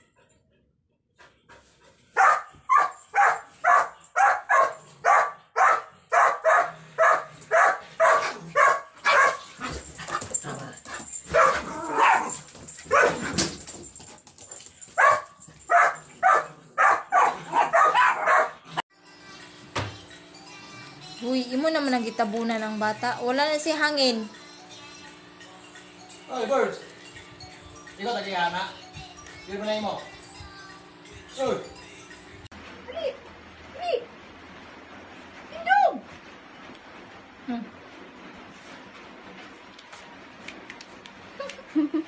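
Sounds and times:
dog barking: 0:02.2 - 0:09.5, 0:11.3 - 0:13.3, 0:15.0 - 0:18.6.

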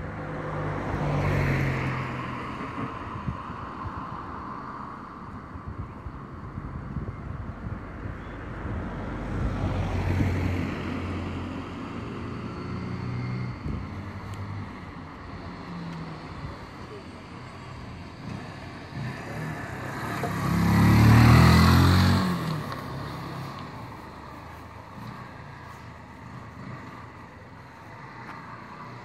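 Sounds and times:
motorbike engine passing by: 0:18.0 - 0:23.9.

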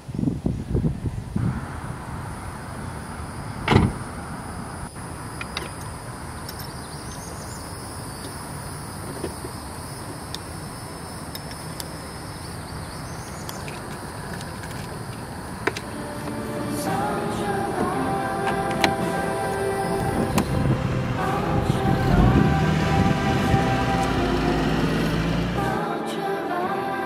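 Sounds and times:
steady background hiss: 0:00.0 - 0:27.0
car door thump: 0:03.6 - 0:04.0
light clicks of buckles and keys: 0:05.4 - 0:06.8.

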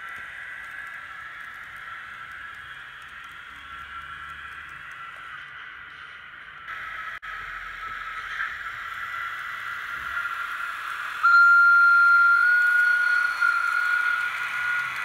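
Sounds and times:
model locomotive running sound: 0:00.0 - 0:15.0
loud steady high tone: 0:11.1 - 0:15.0.

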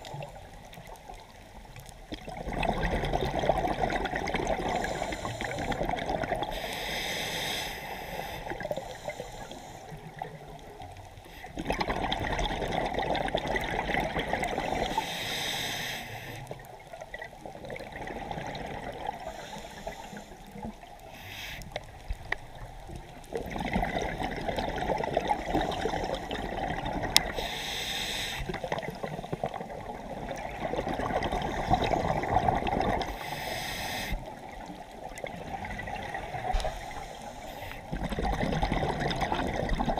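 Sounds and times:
exhaled bubbles rushing: 0:02.1 - 0:06.6, 0:11.6 - 0:15.0, 0:17.1 - 0:19.2, 0:22.8 - 0:27.4, 0:28.5 - 0:33.2, 0:34.3 - 0:36.8, 0:37.8 - 0:39.9
scuba regulator breathing: 0:04.6 - 0:10.2, 0:14.7 - 0:16.6, 0:19.1 - 0:22.4, 0:25.4 - 0:26.6, 0:27.2 - 0:28.7, 0:31.3 - 0:34.5, 0:36.4 - 0:38.0.

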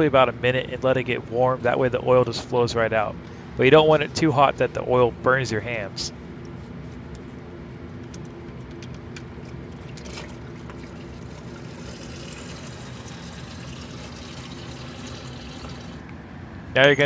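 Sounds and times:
oil pouring into a pan: 0:09.8 - 0:16.0.

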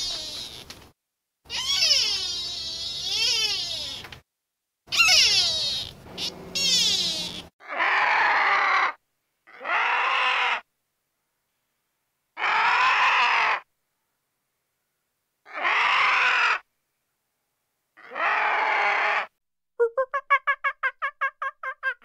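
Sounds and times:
animal calling: 0:01.5 - 0:04.1, 0:04.9 - 0:10.6.

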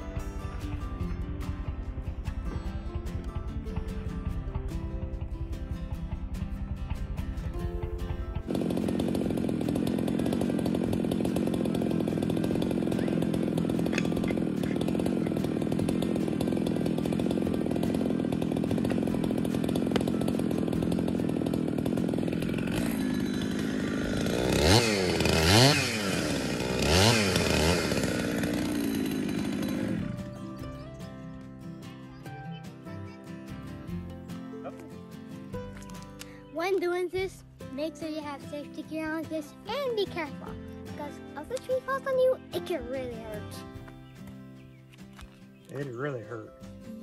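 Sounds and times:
chainsaw engine revving: 0:07.6 - 0:31.3.

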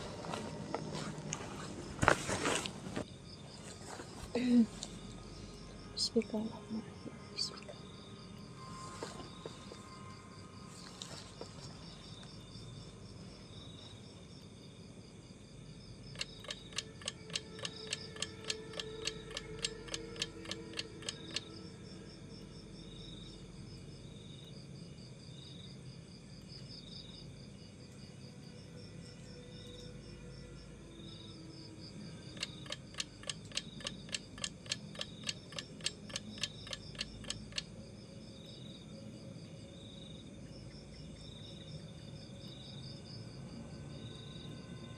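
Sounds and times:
insects chirring: 0:03.0 - 0:44.9
sharp ticks: 0:16.1 - 0:21.5, 0:32.3 - 0:37.7.

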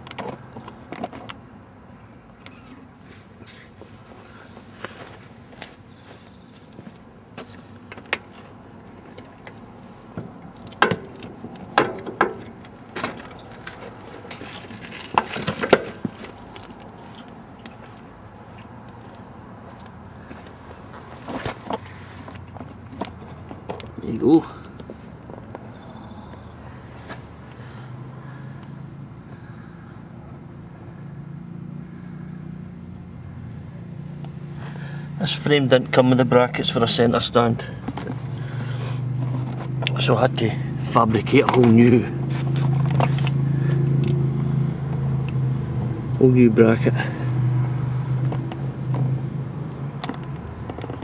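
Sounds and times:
low engine hum: 0:00.0 - 0:51.0
metal stand knocks and clanks: 0:10.7 - 0:16.1.

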